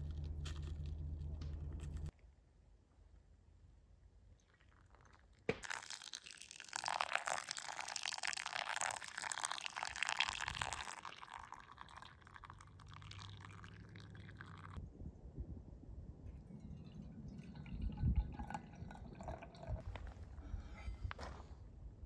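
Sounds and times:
water pouring onto coffee grounds: 0:04.4 - 0:14.8, 0:16.6 - 0:20.0.

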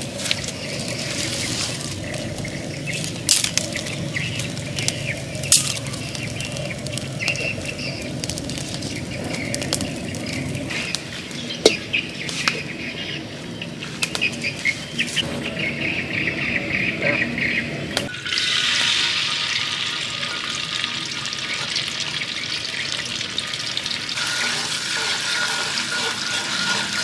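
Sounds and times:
twig fire crackling: 0:00.0 - 0:15.7, 0:21.0 - 0:27.0
sharp pops of fire: 0:02.1 - 0:12.6.

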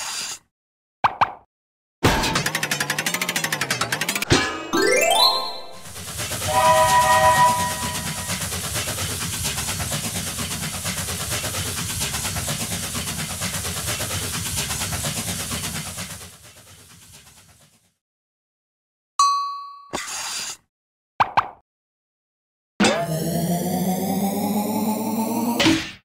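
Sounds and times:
chord whistle blast: 0:04.8 - 0:08.4
rhythmic rumbling clatter: 0:05.8 - 0:16.8.

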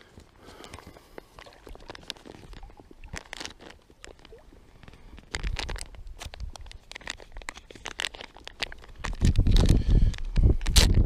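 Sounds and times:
plastic packet crinkling: 0:00.6 - 0:11.0.

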